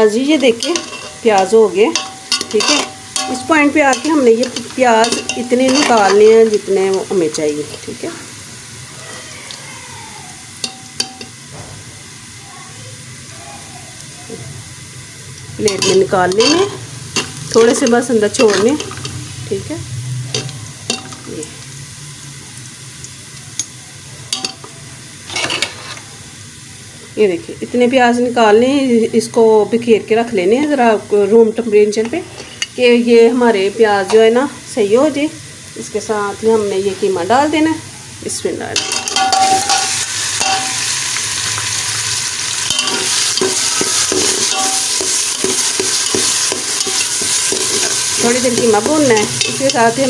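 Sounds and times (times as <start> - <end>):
onions sizzling in oil: 0.0 - 50.0
metal spoon clinking pot: 0.4 - 7.4, 10.6 - 11.4, 15.7 - 19.2, 20.3 - 21.4, 24.3 - 24.7, 38.8 - 40.9, 42.6 - 50.0.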